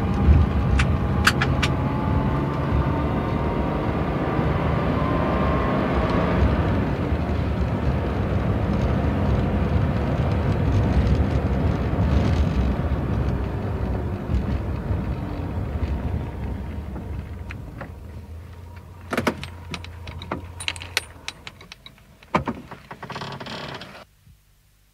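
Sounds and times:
road and engine noise in car: 0.0 - 24.1
clicks and knocks in cabin: 0.7 - 1.8, 17.0 - 24.0
car engine idling: 13.6 - 23.1.

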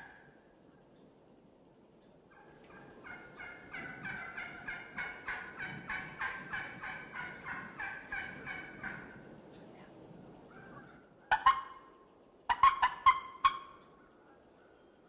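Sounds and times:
wild turkey yelping: 2.3 - 9.2, 10.5 - 14.8.

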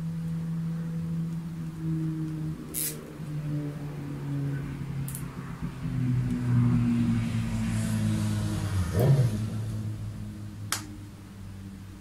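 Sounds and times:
low steady hum: 0.0 - 12.0
cable tie zipping: 2.7 - 3.1.

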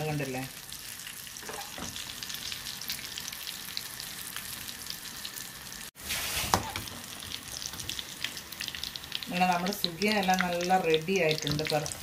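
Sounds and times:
balls deep-frying in oil: 0.0 - 12.0.

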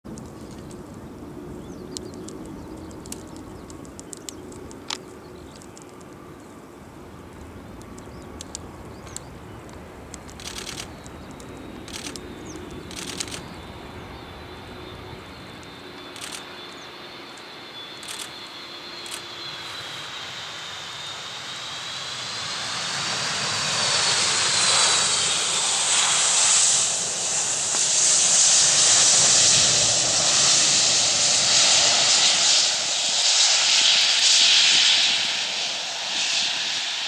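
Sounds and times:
distant jet engines rumbling: 0.1 - 37.0
sharp clicks: 1.9 - 6.2, 7.8 - 13.6, 15.6 - 16.5, 17.3 - 19.3
thin high whine: 10.4 - 23.3.

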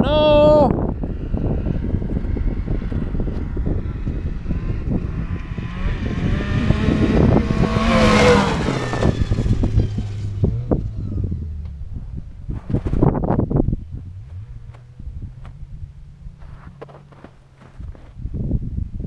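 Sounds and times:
wind buffeting microphone: 0.0 - 19.0
snowmobile engine passing: 0.8 - 13.2.

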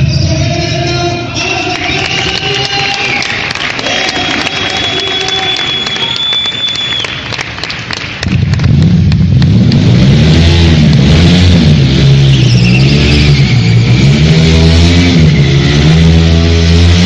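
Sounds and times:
motorcycle engine revving: 8.2 - 17.0.

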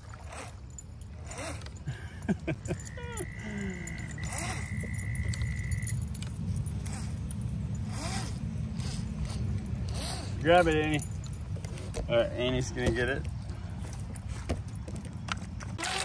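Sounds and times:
small electric motor whining: 1.2 - 1.8, 3.3 - 5.9, 6.7 - 10.9, 15.8 - 16.0.

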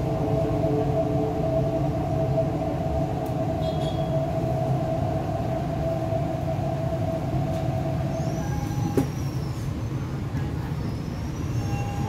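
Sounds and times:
low train running rumble: 0.0 - 12.0
faint high squeal: 3.5 - 4.3, 7.0 - 10.1, 10.8 - 12.0
train motor whine: 5.9 - 9.6.

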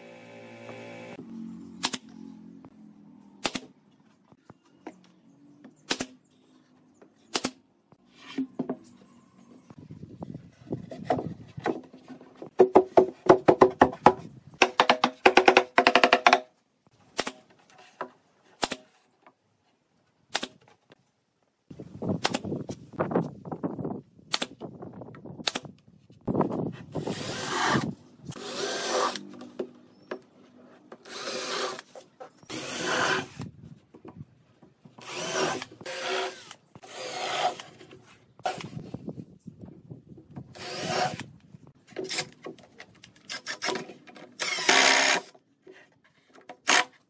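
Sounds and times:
nail gun firing into wood: 3.4 - 3.7, 7.3 - 7.6, 18.6 - 18.8, 20.3 - 20.6, 24.3 - 24.6, 25.4 - 25.7.

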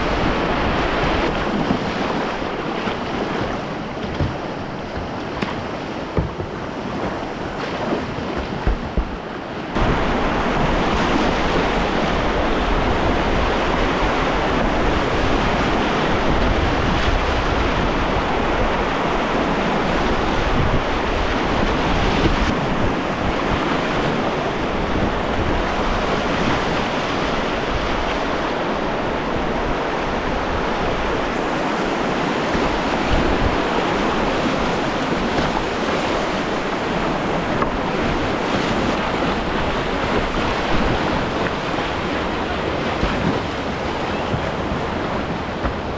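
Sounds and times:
river rapids rushing: 0.0 - 45.9
light knocks: 8.4 - 9.2.

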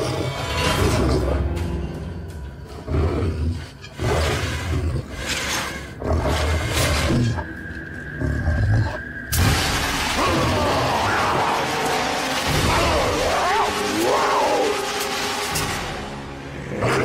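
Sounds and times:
creature growls and snarls: 0.0 - 1.4, 10.1 - 15.5, 16.6 - 17.0.

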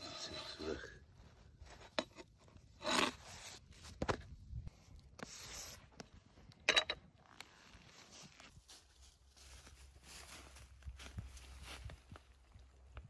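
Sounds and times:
dry leaves rustling: 7.5 - 12.4.

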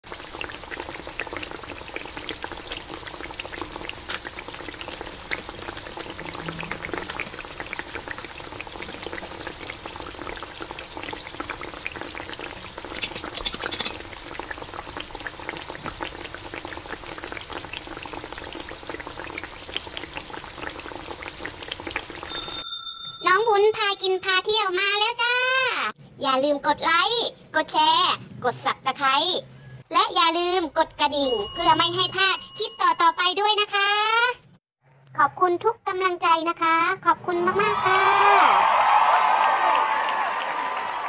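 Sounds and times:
soup simmering and bubbling: 0.0 - 22.3.

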